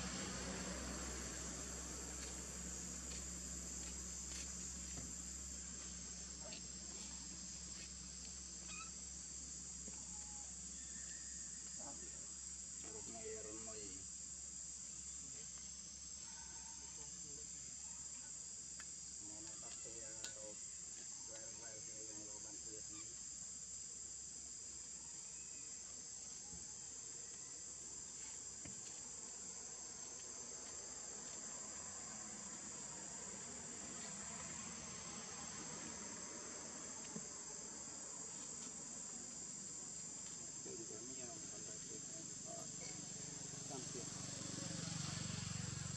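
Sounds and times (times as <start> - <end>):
insect chorus buzzing: 0.0 - 45.9.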